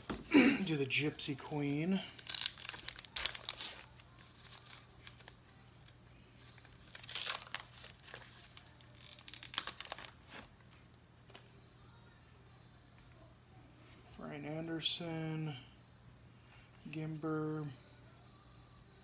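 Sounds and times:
card pack wrapper crinkling: 2.0 - 5.7, 6.4 - 10.5.

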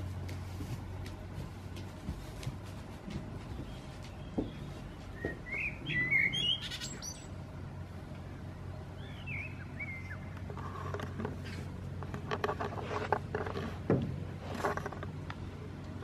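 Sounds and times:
small songbird chirping: 3.6 - 7.4, 8.2 - 10.5.

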